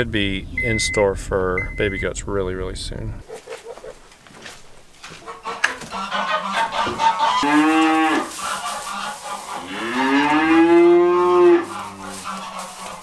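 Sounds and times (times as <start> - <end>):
goats bleating: 5.5 - 13.0.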